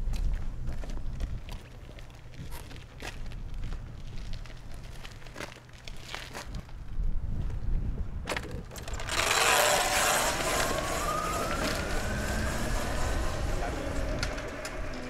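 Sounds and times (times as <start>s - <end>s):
electric motorcycle motor whine: 8.8s - 15.0s
rushing noise: 8.9s - 15.0s.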